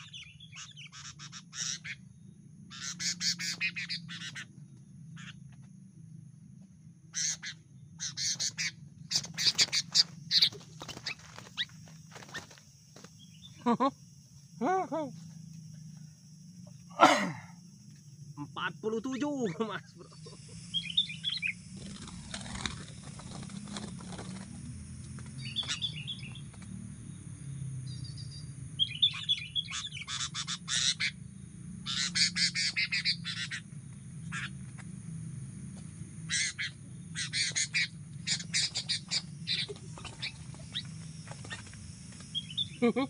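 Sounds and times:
harsh bird chattering: 0.0s - 2.0s, 2.7s - 4.5s, 5.2s - 5.4s, 7.1s - 12.5s, 28.8s - 31.2s, 31.8s - 33.6s, 36.3s - 40.8s
bird chirps: 0.0s - 5.6s, 7.1s - 17.0s, 17.6s - 22.0s, 25.3s - 26.6s, 27.8s - 31.2s, 31.8s - 34.6s, 36.3s - 43.0s.

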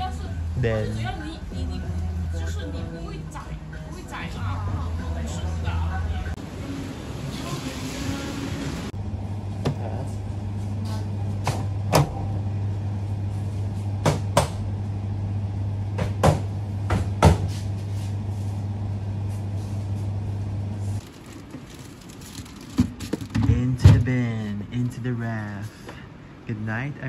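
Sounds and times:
washing machine electrical hum: 8.6s - 26.9s.

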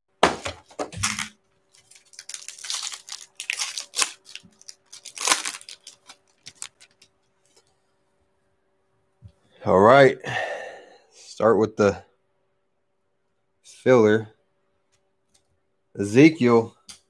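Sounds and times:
foil wrapper crinkling and tearing: 0.7s - 7.2s.

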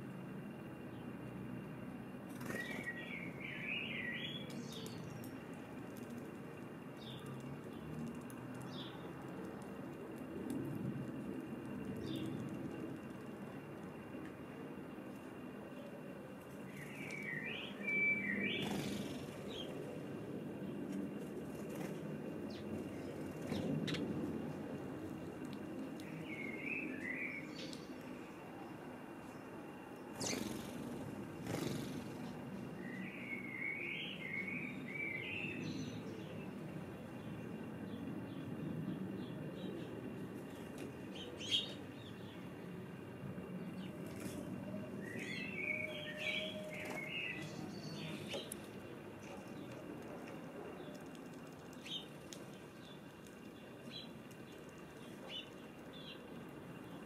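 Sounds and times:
low background noise: 0.0s - 57.0s
small bird chirps: 2.4s - 5.4s, 16.7s - 19.7s, 30.1s - 32.2s, 41.1s - 42.4s
bird wing whooshes: 30.2s - 32.3s.

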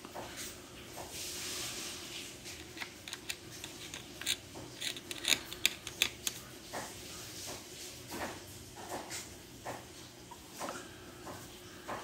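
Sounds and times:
metal tool scraping grease: 2.5s - 6.4s
metal tool clicking against gears: 3.0s - 6.4s.

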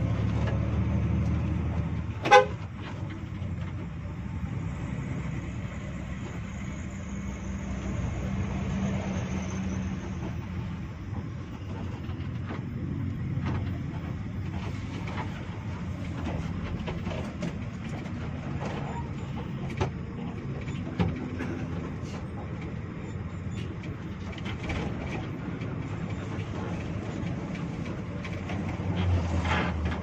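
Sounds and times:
bus engine droning: 0.0s - 30.0s
road noise: 0.0s - 30.0s
bus horn toot: 2.2s - 2.7s.

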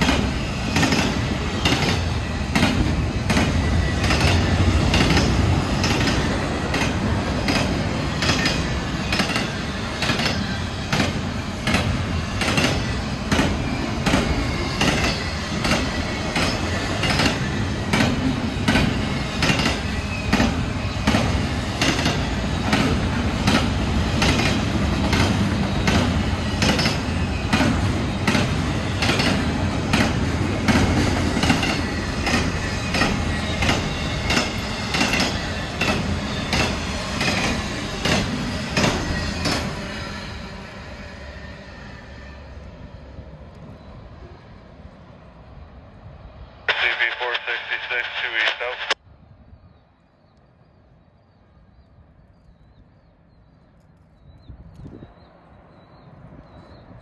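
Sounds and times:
train wheels clicking over rail joints: 0.0s - 39.8s
low train rumble: 0.0s - 57.0s.

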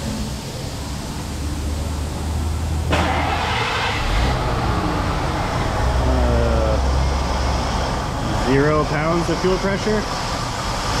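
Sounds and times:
car engine turning over: 0.0s - 8.7s.

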